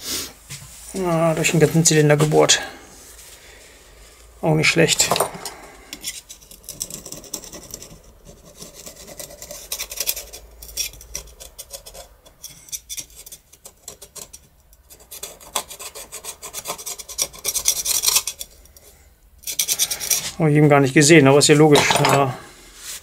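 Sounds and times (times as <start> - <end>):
rasping and scraping on metal: 4.8 - 20.4.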